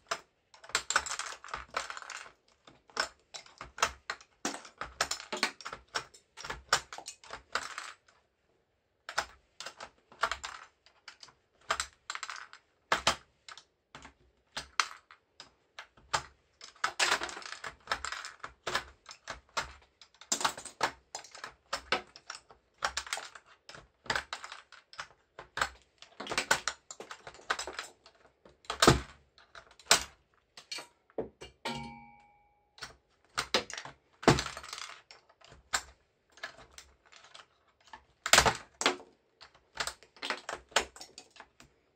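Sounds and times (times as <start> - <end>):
plastic keycaps clicking and clattering: 0.0 - 8.0, 14.0 - 32.1
brief ringing: 31.6 - 32.8.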